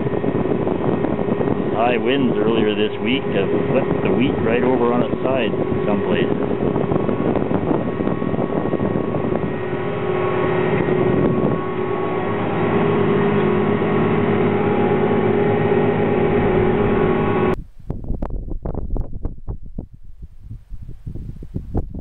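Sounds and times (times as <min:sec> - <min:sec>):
tractor and combine droning: 0:00.0 - 0:17.6
wind buffeting microphone: 0:00.0 - 0:22.0.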